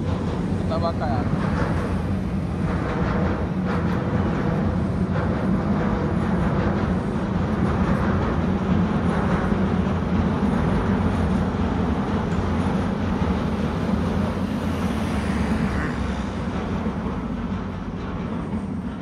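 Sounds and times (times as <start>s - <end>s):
passing vehicle rumble: 11.9s - 18.5s.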